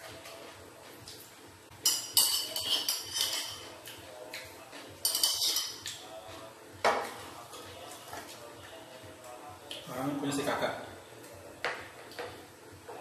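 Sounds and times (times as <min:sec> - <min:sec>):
metal spoon scraping a plate: 0:02.2 - 0:03.7.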